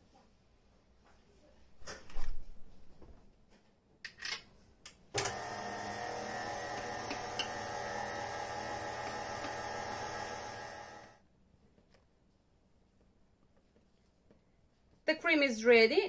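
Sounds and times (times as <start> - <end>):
stand mixer motor whine: 5.2 - 11.2.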